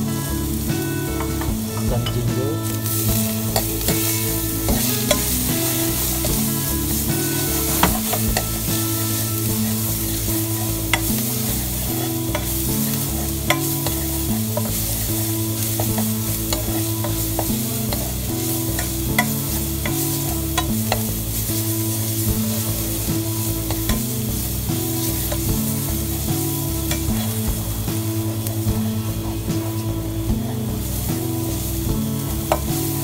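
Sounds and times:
garlic sizzling in hot oil: 0.0 - 33.0
metal utensil scraping pan: 0.8 - 27.6
utensil clicking against pan: 11.9 - 14.8.

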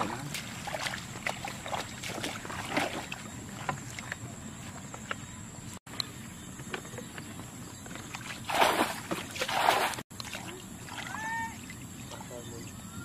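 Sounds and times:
muddy water splashing: 0.0 - 4.8, 7.9 - 12.7.

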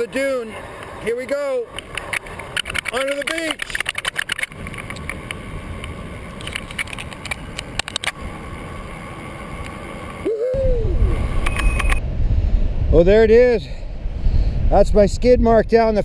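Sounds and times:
bike clicks and rattles: 1.7 - 8.2
wind rumble on microphone: 10.2 - 16.0.

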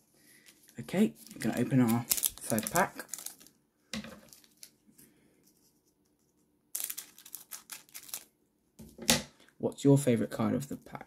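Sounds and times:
foil wrapper crinkling: 0.5 - 3.6, 4.2 - 4.8, 6.7 - 8.3.

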